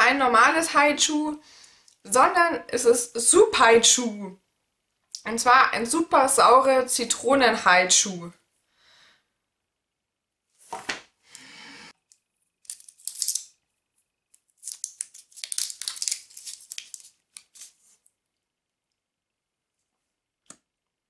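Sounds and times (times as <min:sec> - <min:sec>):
candy wrapper crinkling and tearing: 0:12.6 - 0:13.6, 0:14.3 - 0:17.9.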